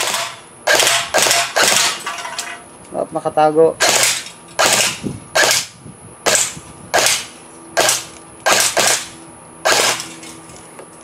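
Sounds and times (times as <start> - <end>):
airsoft rifle shots: 0.0 - 2.0, 3.8 - 10.2.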